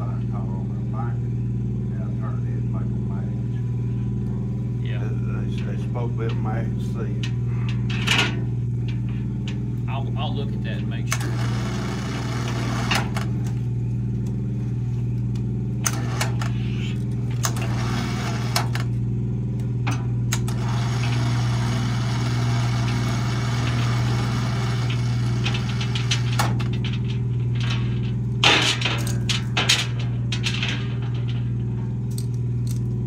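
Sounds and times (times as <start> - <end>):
low hum: 0.0 - 12.4, 22.2 - 33.0
loud metal clank: 23.6 - 32.2.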